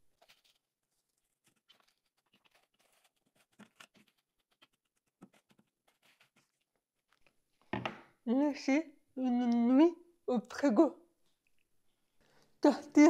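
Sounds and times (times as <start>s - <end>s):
plastic cling film crinkling: 0.0s - 7.4s.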